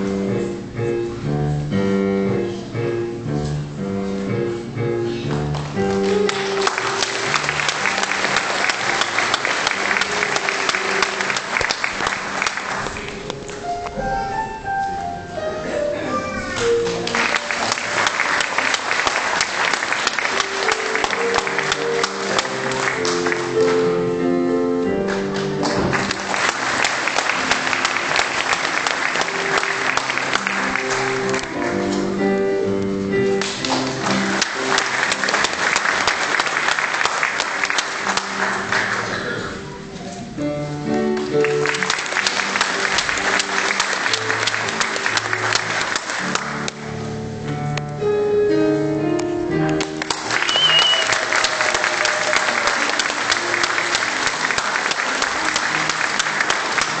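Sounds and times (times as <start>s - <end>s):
piano music: 0.0s - 57.0s
audience applause: 5.5s - 13.6s, 16.4s - 24.2s, 25.0s - 32.0s, 33.4s - 39.8s, 41.2s - 47.0s, 49.8s - 57.0s.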